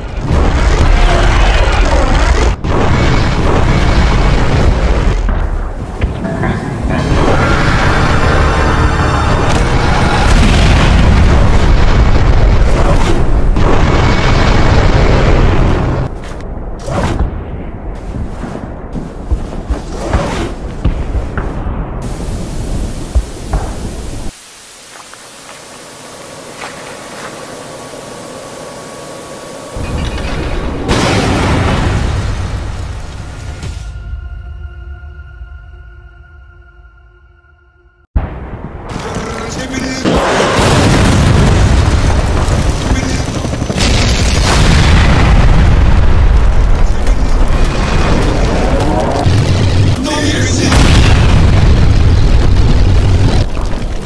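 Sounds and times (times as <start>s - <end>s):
explosion blast: 0.0s - 5.8s, 6.9s - 17.9s, 29.8s - 34.1s, 40.0s - 54.0s
deep explosion rumble: 8.8s - 19.3s, 40.1s - 54.0s
television static hiss: 22.2s - 29.9s.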